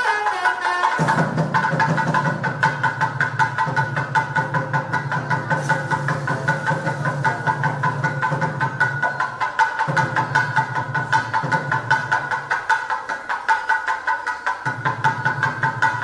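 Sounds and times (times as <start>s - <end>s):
wind instrument with sliding notes: 0.0s - 1.5s
fast temple percussion: 0.0s - 16.0s
even drum beat: 0.8s - 16.0s.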